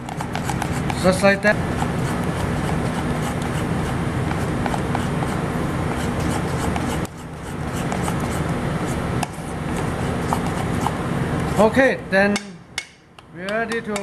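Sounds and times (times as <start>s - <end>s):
batter stirred in metal bowl: 0.0s - 11.7s
steady low hum: 0.0s - 14.0s
utensil clicking against bowl: 12.3s - 14.0s.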